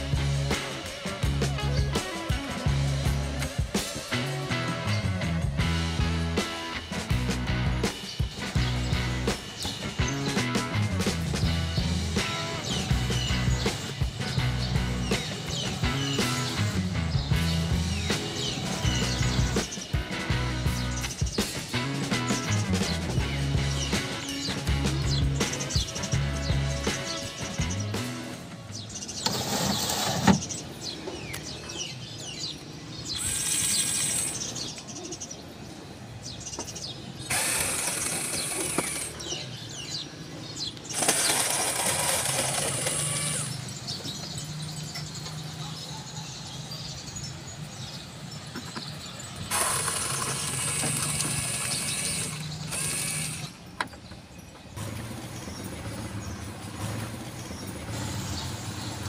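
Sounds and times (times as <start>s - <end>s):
cordless drill whirring: 33.2s - 34.5s, 37.3s - 39.2s, 40.9s - 43.6s, 49.5s - 53.6s.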